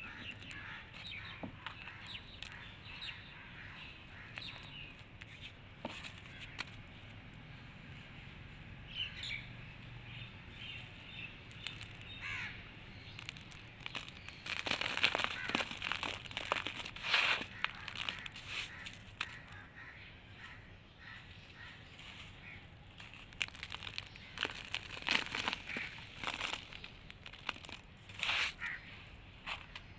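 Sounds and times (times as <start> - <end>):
sand cake crumbling: 0.0 - 6.6, 11.1 - 19.7, 22.4 - 28.8
sand sifting through fingers: 10.8 - 19.6, 22.0 - 28.8.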